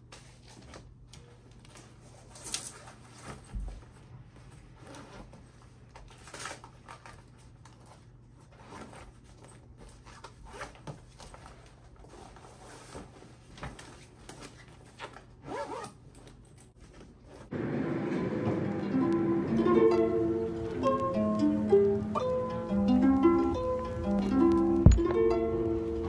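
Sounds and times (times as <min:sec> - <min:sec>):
nylon backpack rustling: 0:04.6 - 0:17.6
zipper being pulled: 0:15.0 - 0:16.0.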